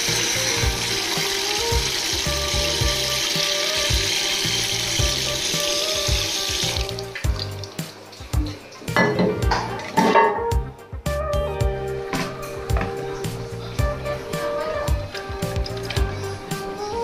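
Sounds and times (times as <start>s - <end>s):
tap water splashing into basin: 0.0s - 10.3s.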